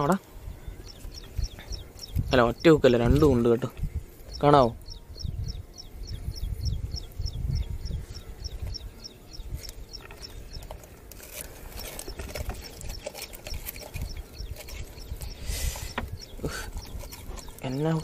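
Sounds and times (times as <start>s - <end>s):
high chirping call: 0.6s - 3.3s, 4.3s - 10.7s, 13.8s - 18.0s.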